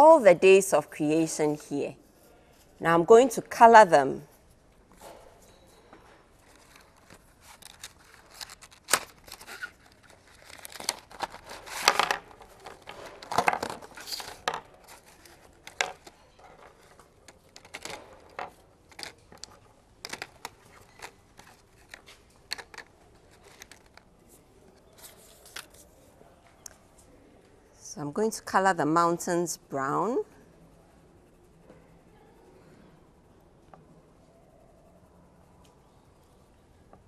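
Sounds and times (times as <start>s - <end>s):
paper rustling: 6.4s - 26.0s.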